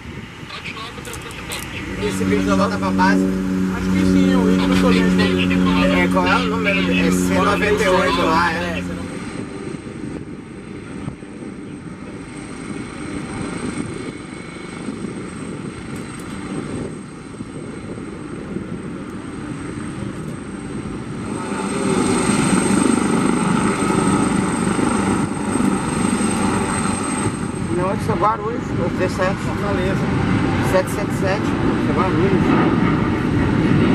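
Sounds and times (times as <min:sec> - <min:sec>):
helicopter rotor and engine noise: 0:00.0 - 0:33.9
thin high whine: 0:00.5 - 0:10.0.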